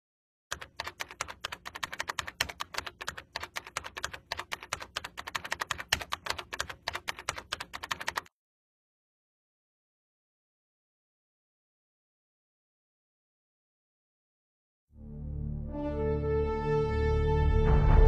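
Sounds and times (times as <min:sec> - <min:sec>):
rapid uneven clicking: 0:00.5 - 0:08.3.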